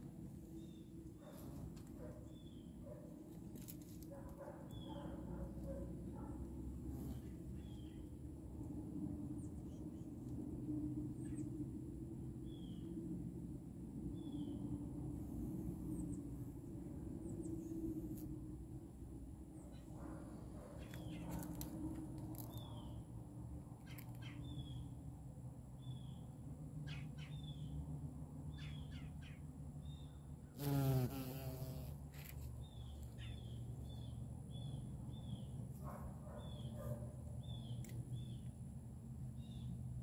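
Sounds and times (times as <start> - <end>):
bee buzzing in flight: 30.6 - 32.0.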